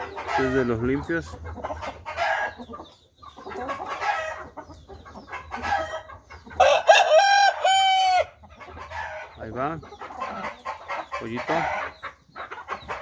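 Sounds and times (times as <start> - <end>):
chickens clucking: 0.0 - 13.0
rooster crowing: 6.6 - 8.4.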